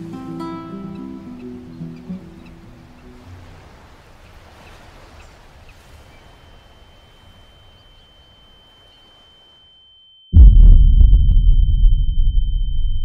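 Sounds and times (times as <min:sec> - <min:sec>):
faint wind: 0:00.0 - 0:09.8
high-pitched ringing tone: 0:06.0 - 0:13.0.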